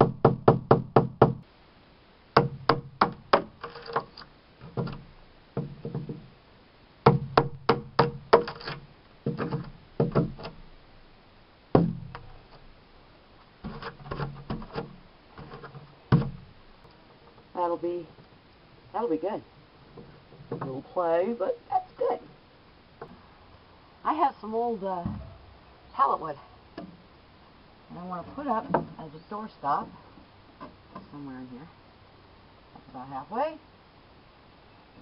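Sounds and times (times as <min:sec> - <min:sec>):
rubber mallet striking chisel: 0:02.4 - 0:03.6.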